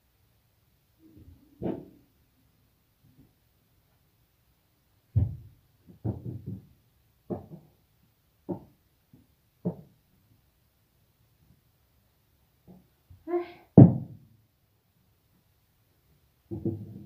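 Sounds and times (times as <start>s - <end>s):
knocks and thuds: 5.1s - 6.7s, 13.8s - 14.2s.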